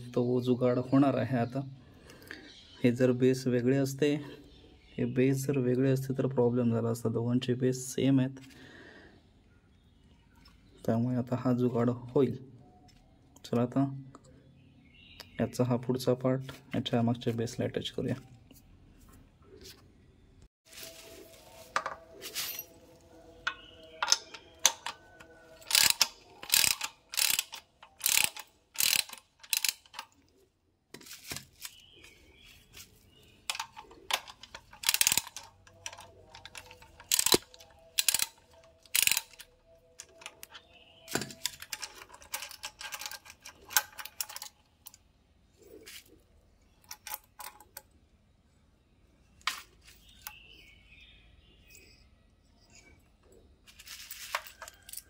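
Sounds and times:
small parts and tools clinking: 20.9s - 48.0s, 51.6s - 55.0s.

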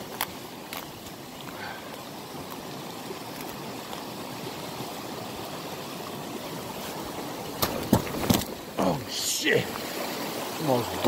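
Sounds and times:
creek water flowing: 0.0s - 11.0s.

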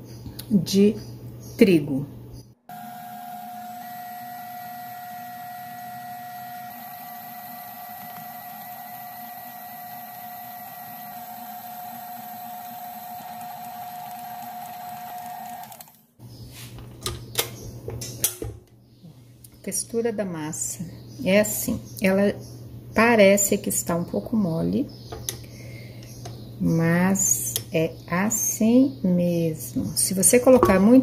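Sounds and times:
stand mixer motor whining: 2.7s - 16.0s.

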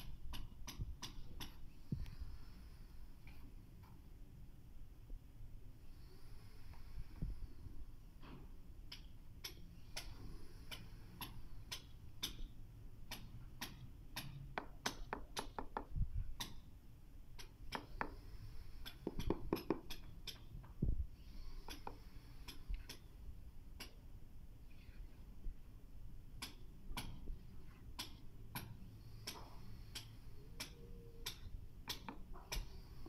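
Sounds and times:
rubber mallet tapping tile: 10.7s - 16.6s, 17.4s - 18.2s, 18.8s - 20.5s, 28.0s - 32.8s.

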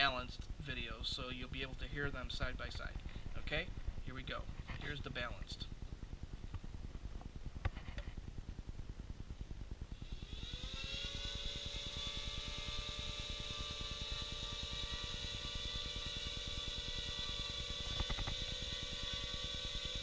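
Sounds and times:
quadcopter motors whining: 9.8s - 20.0s.

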